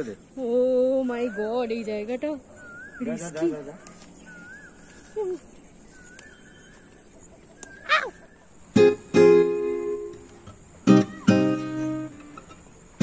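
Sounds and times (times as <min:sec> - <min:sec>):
warbling bird calls: 0:00.2 - 0:09.0
strummed acoustic guitar chords: 0:08.8 - 0:13.0.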